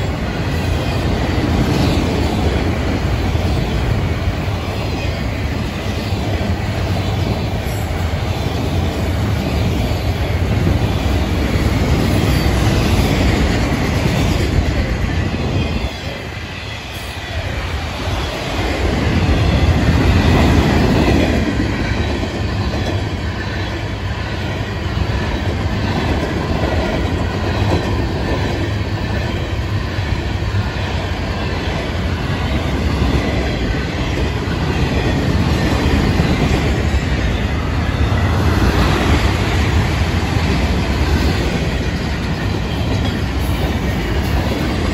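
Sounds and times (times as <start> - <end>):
freight train cars rolling past: 0.0 - 44.9.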